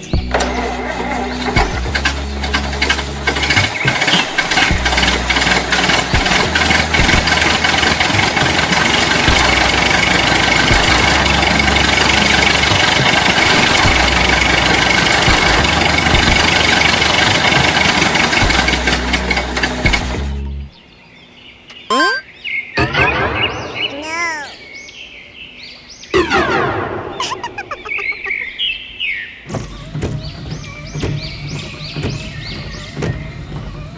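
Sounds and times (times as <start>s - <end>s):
tractor engine idling: 0.0s - 20.7s
rapid clicks and rattles: 0.2s - 20.2s.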